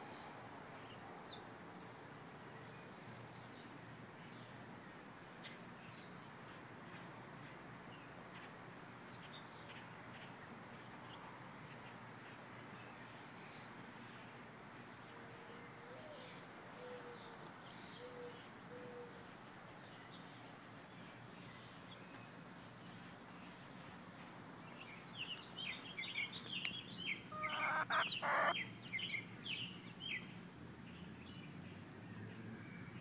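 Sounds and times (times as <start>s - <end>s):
distant bird low hooting call: 27.3s - 28.6s.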